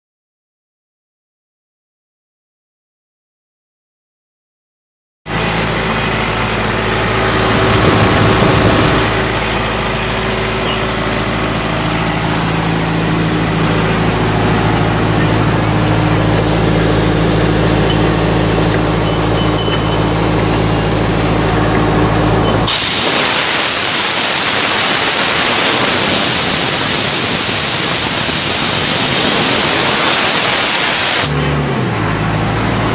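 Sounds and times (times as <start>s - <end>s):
diesel engine humming: 5.3s - 32.9s
compressed air hissing: 22.7s - 31.4s.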